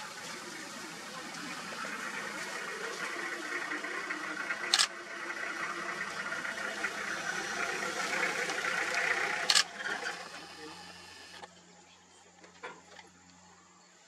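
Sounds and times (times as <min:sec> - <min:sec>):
steady background hiss: 0:00.0 - 0:14.0
camera shutter clicks: 0:04.7 - 0:04.9, 0:09.5 - 0:09.7.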